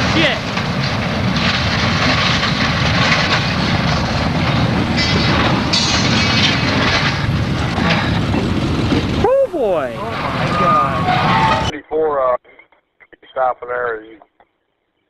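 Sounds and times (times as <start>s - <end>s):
train cars rumbling and grinding: 0.0s - 11.8s
high harsh scraping: 1.6s - 11.7s.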